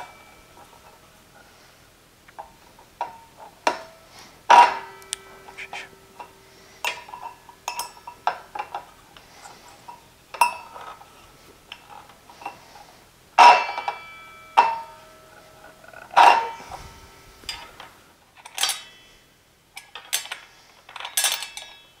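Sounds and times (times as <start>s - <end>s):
sharp clinks and knocks: 2.4s - 11.1s, 19.8s - 22.0s.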